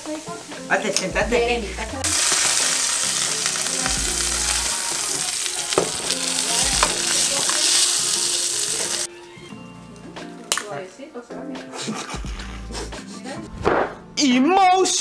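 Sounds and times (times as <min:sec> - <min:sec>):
steak sizzling in a pan: 0:02.0 - 0:09.1
metal tongs tapping pan: 0:05.7 - 0:07.9.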